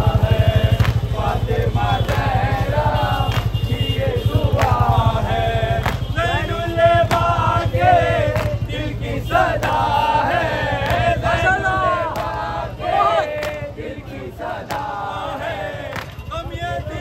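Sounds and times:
man leading chant: 0:00.0 - 0:17.0
men chanting in unison: 0:00.0 - 0:17.0
chest-beating slaps: 0:05.8 - 0:06.1, 0:07.0 - 0:07.4, 0:10.8 - 0:11.1, 0:12.1 - 0:12.5, 0:13.3 - 0:13.7, 0:14.6 - 0:15.0.

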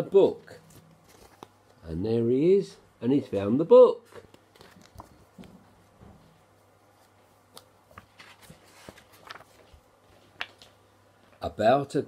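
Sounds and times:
low steady hum: 0:00.0 - 0:12.0
book pages turning: 0:00.5 - 0:01.8, 0:04.1 - 0:05.6, 0:06.9 - 0:10.9
soft clicks of book handling: 0:00.5 - 0:01.8, 0:04.1 - 0:05.7, 0:06.9 - 0:11.4.

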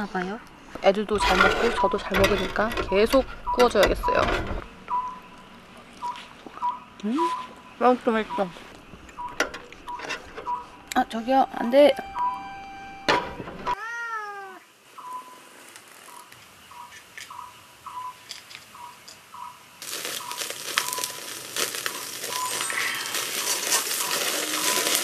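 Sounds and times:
cat meowing: 0:13.7 - 0:14.7
fire crackling: 0:19.8 - 0:25.0
meat sizzling on grill: 0:19.8 - 0:25.0.

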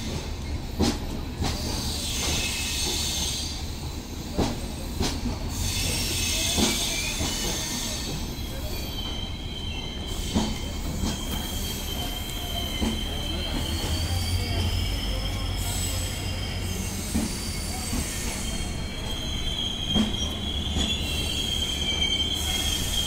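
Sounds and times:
train rumble: 0:00.0 - 0:23.0
high-pitched wheel squeal: 0:05.6 - 0:23.0.

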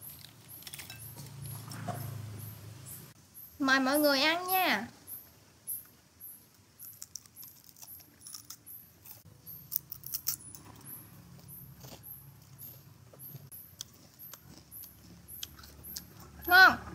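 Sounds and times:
chewing crispy fried potato: 0:06.6 - 0:16.9.

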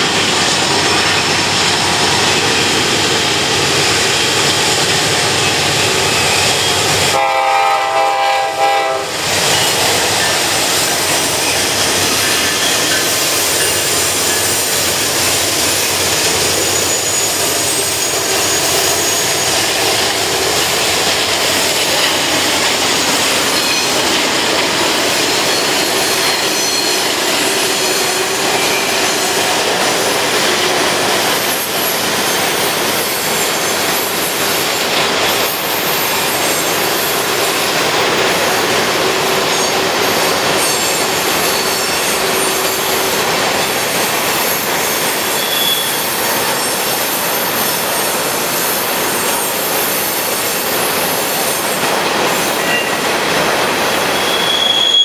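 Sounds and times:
diesel locomotives passing: 0:00.0 - 0:55.0
train cars rolling on rails: 0:00.0 - 0:55.0
high-pitched wheel squeal: 0:15.8 - 0:19.9, 0:25.1 - 0:29.4, 0:39.5 - 0:42.9, 0:44.4 - 0:48.1, 0:52.6 - 0:53.0, 0:53.9 - 0:55.0.

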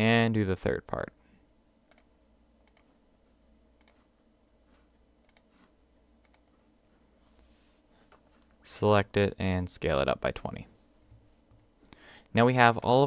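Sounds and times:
low room hiss: 0:00.0 - 0:13.0
computer mouse clicks: 0:01.9 - 0:02.9, 0:03.8 - 0:04.1, 0:05.2 - 0:07.5.

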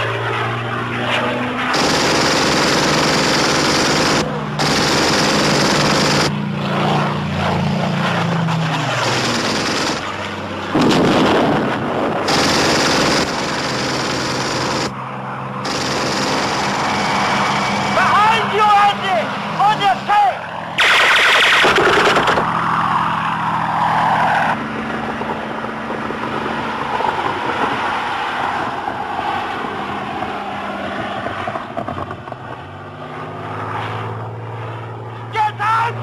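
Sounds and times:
piston aircraft engine drone: 0:00.0 - 0:36.0
aircraft machine-gun fire: 0:00.3 - 0:15.0, 0:15.6 - 0:17.8, 0:20.8 - 0:22.6.

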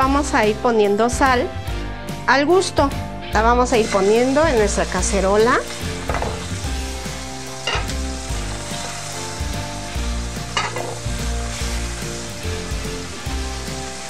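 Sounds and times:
meat sizzling in oil: 0:03.6 - 0:14.0.

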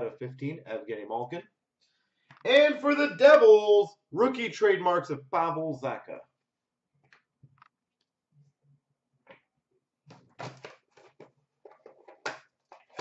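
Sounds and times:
cards and packaging rustling: 0:10.1 - 0:13.0.

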